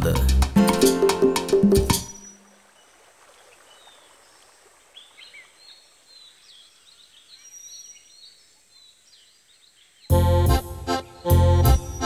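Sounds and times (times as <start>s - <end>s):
birds chirping and whistling: 1.7s - 2.6s, 11.2s - 12.0s.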